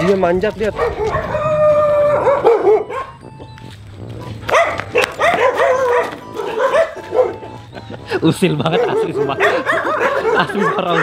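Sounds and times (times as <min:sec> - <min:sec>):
dog barking and yelping: 0:00.0 - 0:03.3, 0:04.2 - 0:07.8, 0:08.5 - 0:11.0.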